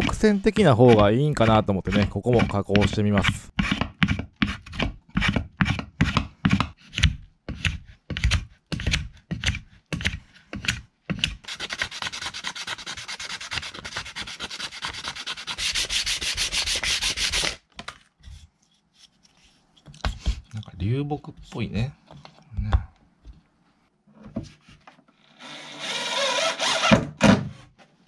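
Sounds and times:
sanding block rubbing wood: 0.0 - 3.8, 11.5 - 17.6
fast sandpaper rubbing: 11.5 - 17.6.

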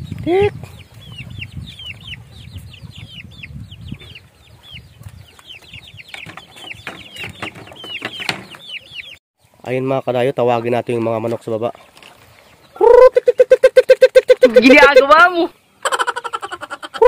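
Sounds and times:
chicks peeping: 0.0 - 11.8, 15.8 - 17.0.

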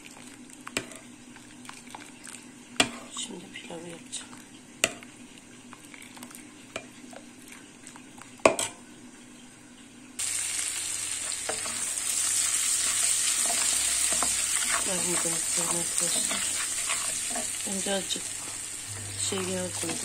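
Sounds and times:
rice sizzling in a pan: 0.0 - 8.8, 10.2 - 20.0
metal spoon stirring soup in pot: 4.2 - 7.3, 11.2 - 20.0.

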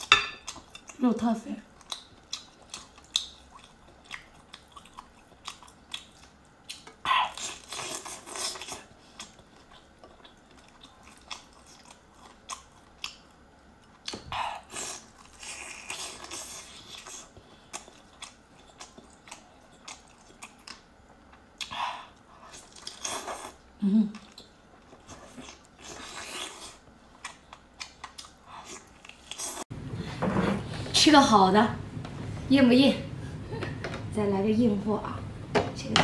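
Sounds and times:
wet chewing: 1.7 - 20.9, 21.6 - 29.6.

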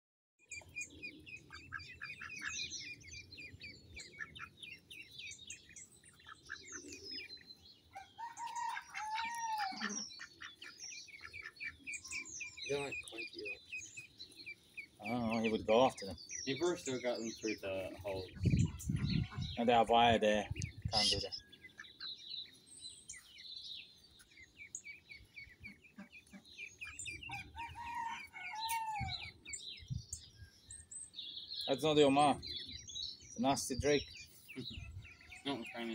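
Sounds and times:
low bird call: 0.5 - 19.6
ducklings peeping: 0.5 - 35.9.

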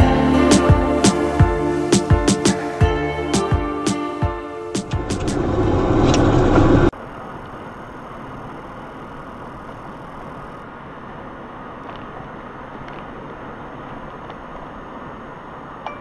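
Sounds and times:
car road and engine noise: 5.0 - 6.9.

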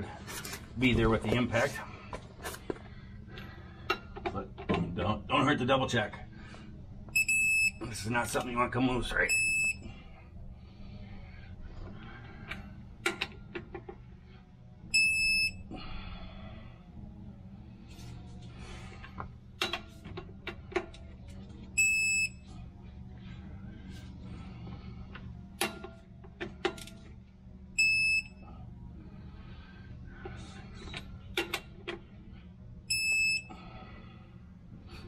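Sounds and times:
torque wrench beeping: 21.8 - 22.4, 27.8 - 28.4, 32.9 - 33.5.

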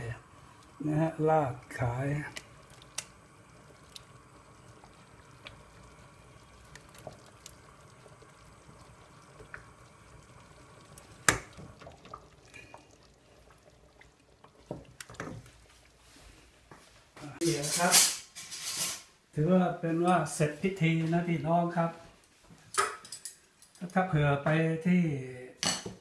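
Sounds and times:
curry scooped and poured: 1.7 - 10.3.

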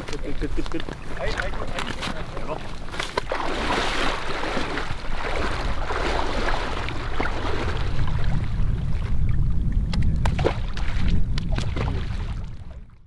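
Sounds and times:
water sloshing and splashing: 0.0 - 13.0
wind on microphone: 0.0 - 13.0
fish splashing into water: 3.0 - 8.6, 10.2 - 12.5.

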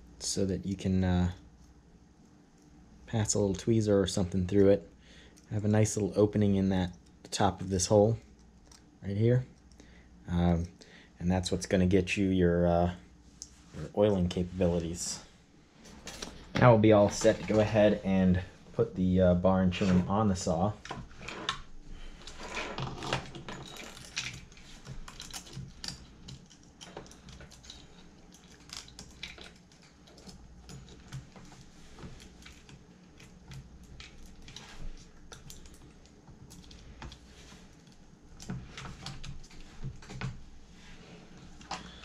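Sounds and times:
metal chain clicking and rattling: 22.2 - 31.6.

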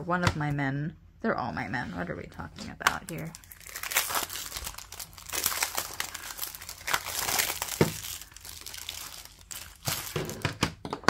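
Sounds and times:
plastic wrap crinkling: 2.9 - 10.8.

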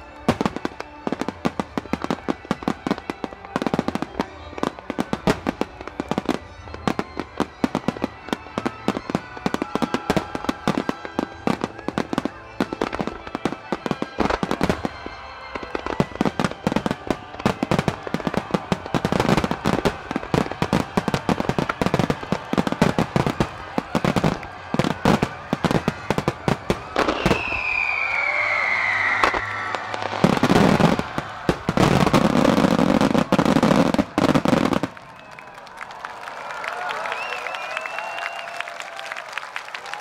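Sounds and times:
fireworks bursting with bangs: 0.0 - 35.3
falling firework whistle: 1.8 - 35.7, 36.9 - 39.2.

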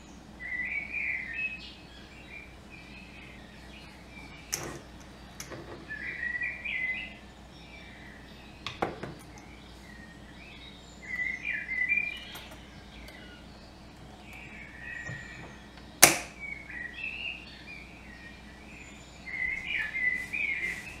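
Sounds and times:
small birds twittering: 0.0 - 21.0
jar clamp snapping shut: 4.5 - 5.9, 12.2 - 13.2, 15.1 - 16.4.

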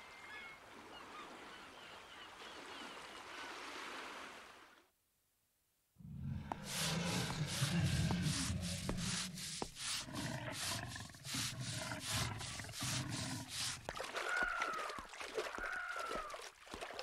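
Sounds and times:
brush scrubbing wooden floor: 6.2 - 14.1.

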